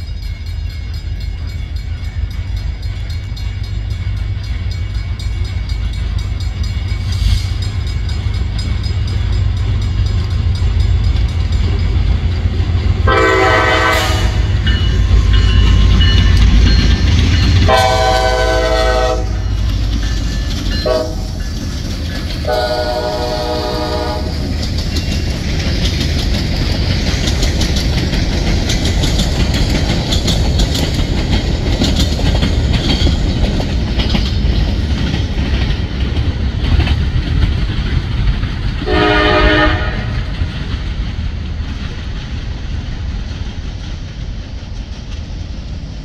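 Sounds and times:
train wheels rumbling and clacking: 0.0 - 46.0
locomotive horn blasts: 13.0 - 14.7, 17.7 - 19.5, 20.8 - 21.3, 22.4 - 24.4, 38.8 - 40.3.

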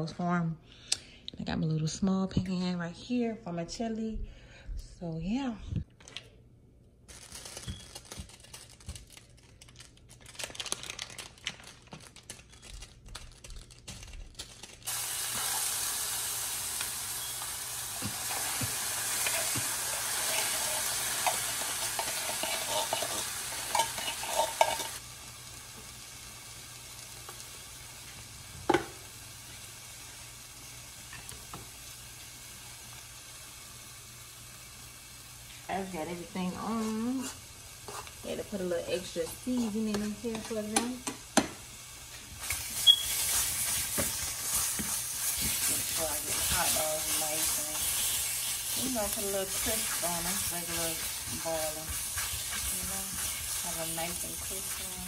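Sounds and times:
chili sizzling in a frying pan: 14.3 - 55.0
spoon stirring and scraping pan: 18.0 - 25.0, 36.8 - 41.6, 42.4 - 55.0
pans clicking and knocking: 21.2 - 25.0, 39.9 - 41.6.

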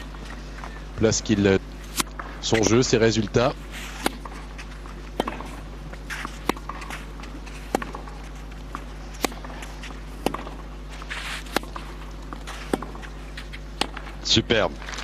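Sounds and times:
racquet hitting tennis ball: 1.8 - 2.9, 3.6 - 14.3.

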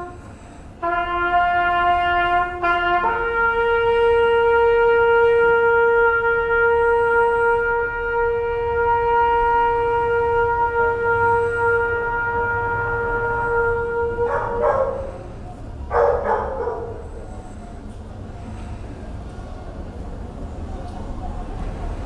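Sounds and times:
wind instrument long note: 0.0 - 15.4.

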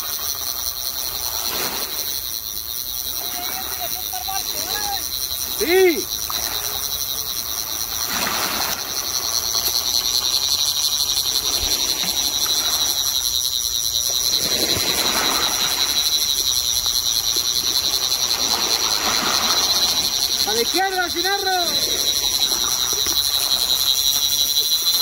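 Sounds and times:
surf washing on beach: 3.1 - 6.9, 7.9 - 10.4, 11.3 - 13.2, 14.2 - 16.5, 17.4 - 24.4.

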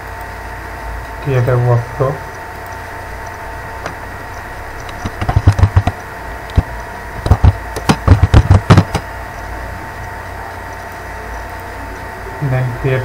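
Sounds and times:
steady background hum: 0.0 - 13.0
typing on keyboard: 4.8 - 9.0.

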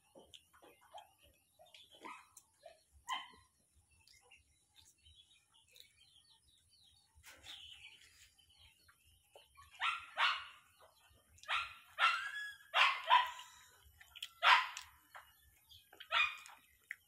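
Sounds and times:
dog barking: 2.0 - 3.5, 9.7 - 10.8, 11.4 - 13.5, 14.4 - 15.0, 16.0 - 16.6.

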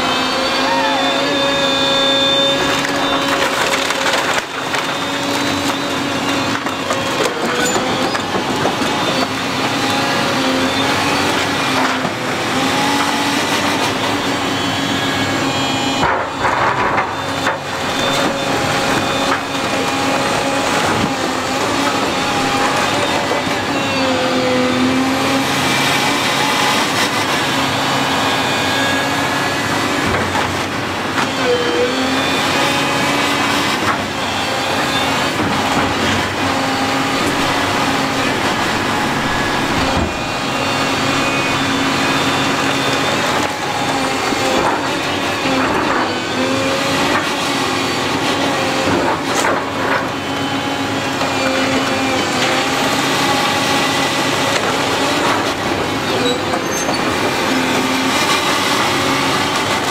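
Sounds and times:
excavator diesel engine running: 0.0 - 59.9
wood cracking: 2.7 - 8.8.

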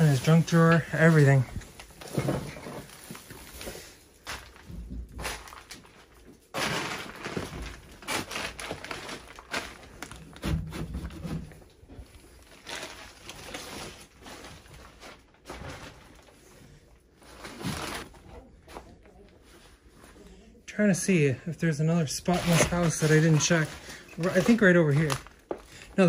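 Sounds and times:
rummaging through kitchen drawers: 0.0 - 16.4, 22.1 - 25.8.

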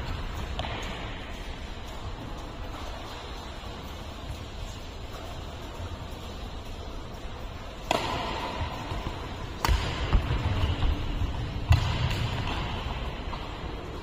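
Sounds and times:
racket hitting shuttlecock: 0.0 - 1.4, 7.6 - 14.0
footwork thumps on court: 7.8 - 13.7.

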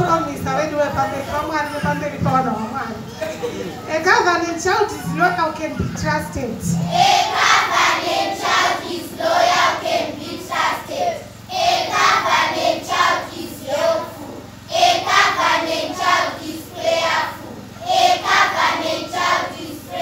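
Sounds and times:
children chanting in unison: 6.8 - 20.0.

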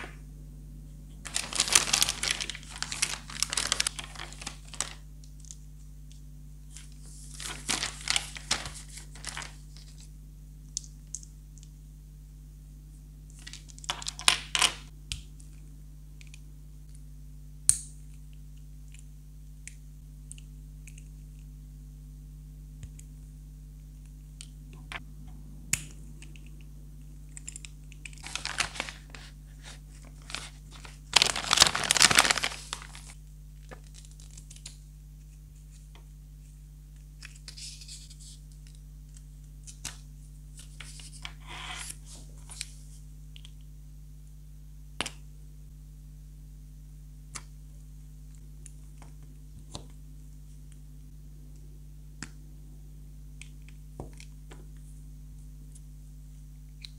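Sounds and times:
foil bag crinkling: 1.2 - 5.1, 6.8 - 10.0, 13.4 - 14.9, 28.2 - 34.6.

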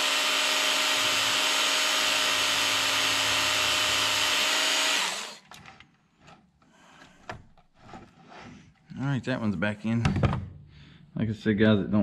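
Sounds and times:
electric sharpener whining: 0.0 - 5.5.

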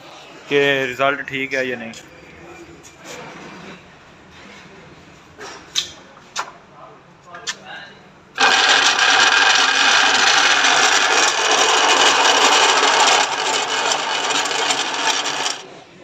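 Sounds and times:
cheese grater machine running: 8.4 - 15.8.

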